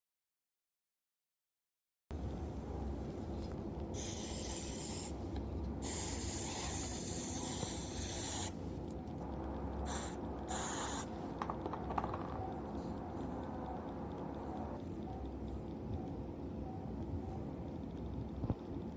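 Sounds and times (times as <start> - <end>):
steady low rumble: 2.1 - 18.9
aerosol spray hissing: 4.0 - 8.6, 9.8 - 11.2.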